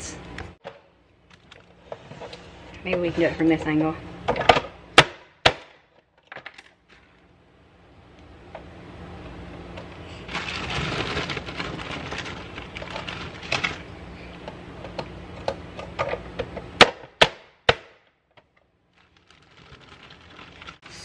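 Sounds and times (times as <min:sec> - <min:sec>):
carrots crunching in chopper: 0:10.3 - 0:13.9, 0:19.0 - 0:21.0.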